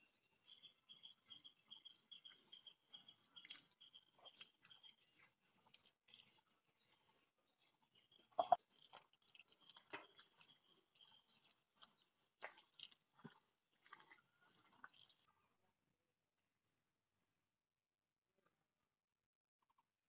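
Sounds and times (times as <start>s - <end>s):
hand smearing wet mud: 8.4s - 15.2s.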